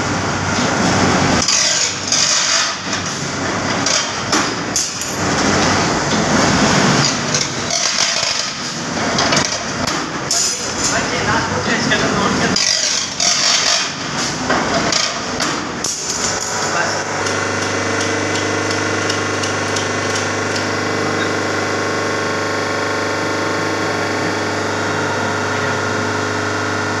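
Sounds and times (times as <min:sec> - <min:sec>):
electrical hum: 0:08.4 - 0:27.0.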